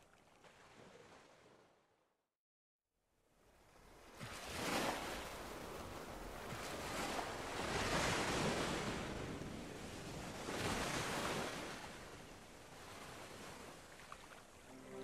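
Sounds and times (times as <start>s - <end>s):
waves washing in: 4.0s - 15.0s.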